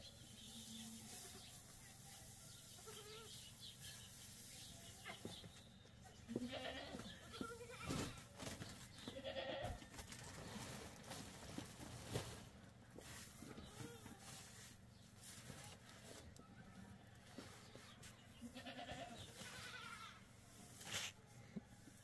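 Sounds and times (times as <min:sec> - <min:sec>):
goats bleating: 0:06.3 - 0:08.2, 0:09.1 - 0:09.8, 0:18.4 - 0:20.3.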